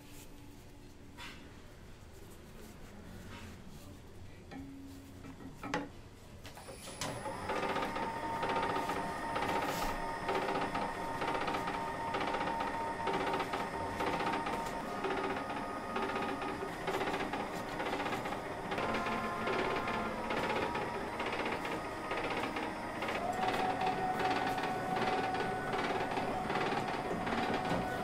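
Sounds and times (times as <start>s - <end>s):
small machine whirring and clattering: 6.5s - 28.0s.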